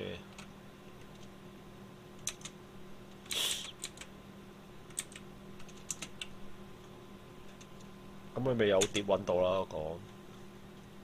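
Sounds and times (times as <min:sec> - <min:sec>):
faint steady hum: 0:00.0 - 0:11.0
keyboard keys clicking: 0:02.2 - 0:02.6, 0:04.9 - 0:06.3.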